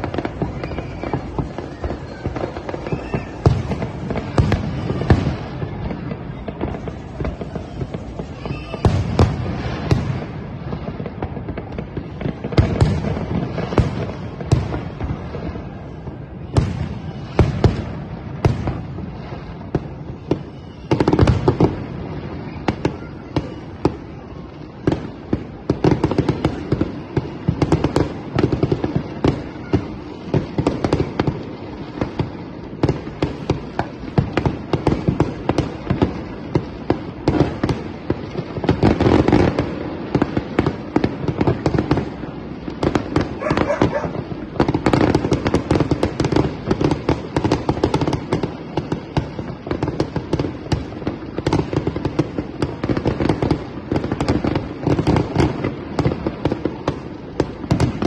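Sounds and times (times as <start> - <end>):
fireworks booms and bangs: 0.0 - 58.0.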